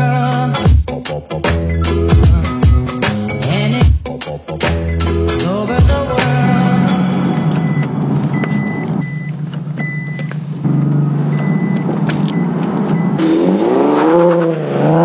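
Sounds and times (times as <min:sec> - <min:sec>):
car engine from inside cabin: 0:06.4 - 0:15.0
tyre noise: 0:07.4 - 0:15.0.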